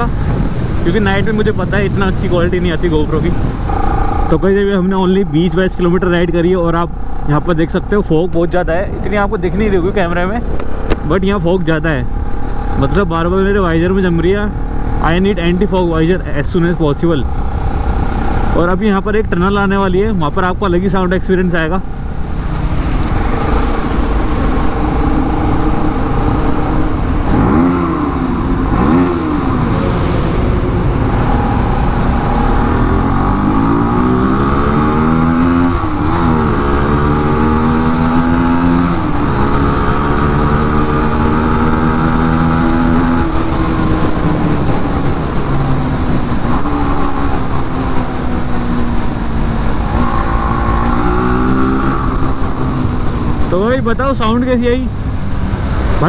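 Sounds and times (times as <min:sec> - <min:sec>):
motorcycle engines revving in tunnel: 0:22.6 - 0:54.7.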